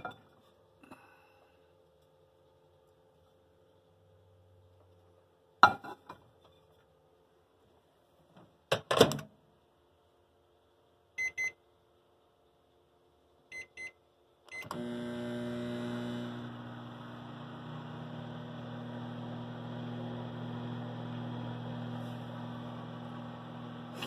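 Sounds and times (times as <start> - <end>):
microwave humming: 14.5 - 24.0.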